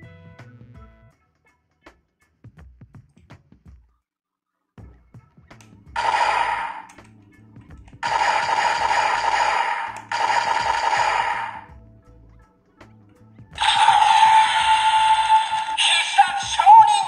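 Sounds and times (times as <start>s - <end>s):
toy electronic sound effects: 13.6s - 17.0s.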